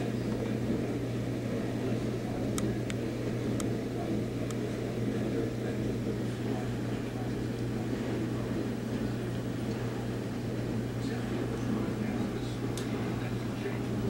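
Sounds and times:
low mechanical hum: 0:00.0 - 0:14.0.

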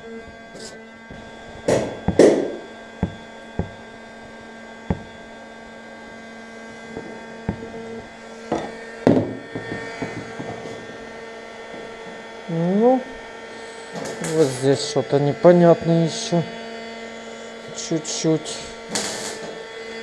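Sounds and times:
heat gun humming: 0:00.0 - 0:12.0
handling rubs: 0:00.2 - 0:05.4, 0:06.9 - 0:08.2
metal rod knocking on plastic: 0:01.7 - 0:03.9, 0:04.9 - 0:05.2, 0:07.5 - 0:07.8.

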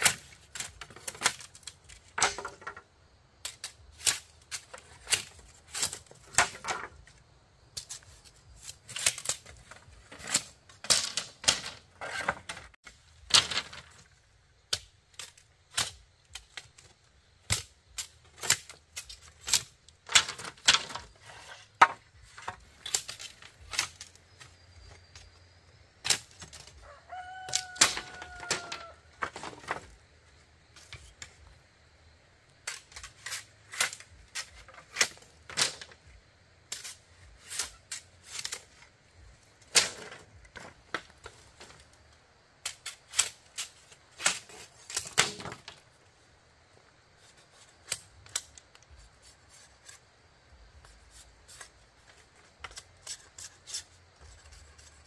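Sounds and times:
knocks and chops on bamboo: 0:17.4 - 0:21.0
rooster crowing: 0:26.8 - 0:29.1.

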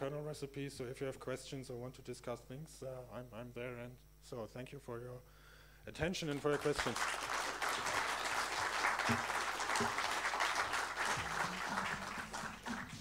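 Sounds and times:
audience applauding: 0:06.3 - 0:13.0.

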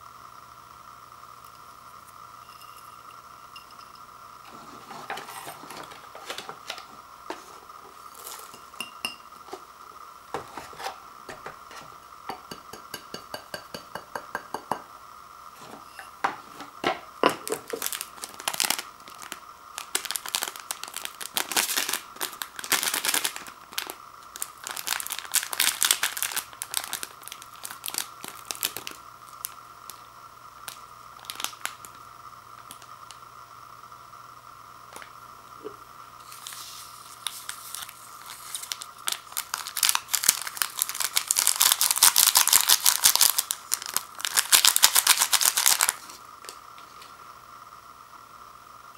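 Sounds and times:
faint steady hum: 0:00.0 - 0:48.9
packet crinkling and tearing: 0:17.5 - 0:30.0, 0:30.6 - 0:32.0, 0:36.2 - 0:46.2.

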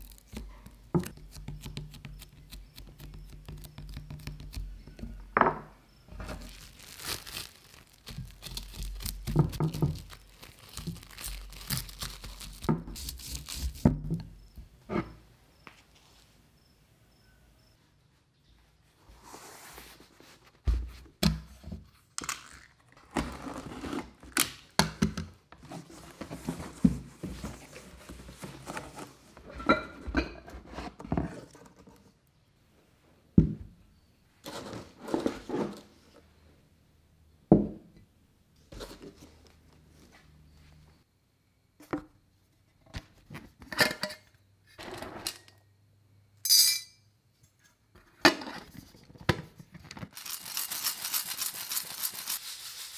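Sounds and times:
cardboard parcel opened: 0:06.2 - 0:13.8, 0:25.6 - 0:29.4.

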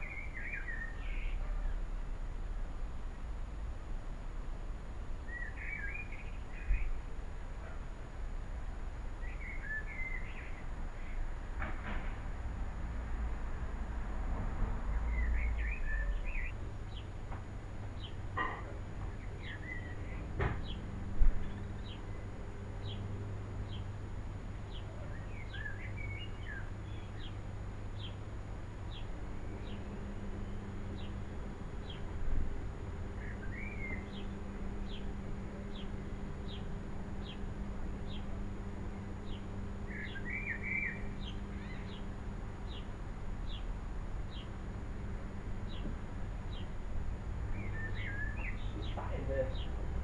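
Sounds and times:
songbird chirping: 0:00.0 - 0:03.3, 0:05.2 - 0:07.8, 0:09.1 - 0:11.4, 0:14.8 - 0:49.9
steady low hum: 0:00.0 - 0:50.0
small bird chirping: 0:05.3 - 0:07.0, 0:09.2 - 0:11.2, 0:24.6 - 0:27.4, 0:31.8 - 0:32.2, 0:33.2 - 0:38.4, 0:39.2 - 0:43.7, 0:44.3 - 0:44.5, 0:47.5 - 0:49.8
bird twittering: 0:33.2 - 0:35.1, 0:39.2 - 0:42.0, 0:47.5 - 0:49.7.

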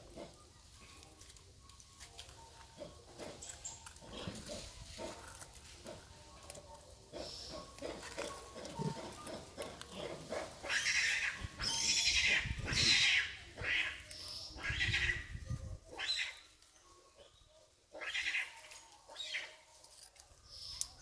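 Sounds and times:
baby monkeys high-pitched calls: 0:10.6 - 0:16.6, 0:17.9 - 0:19.6.

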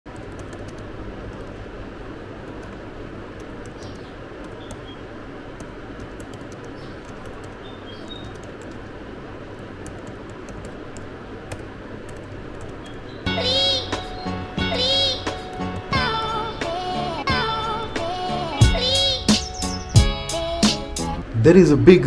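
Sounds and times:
laptop keys clicking: 0:00.1 - 0:01.6, 0:05.6 - 0:13.0
steady background hiss: 0:00.1 - 0:22.0.

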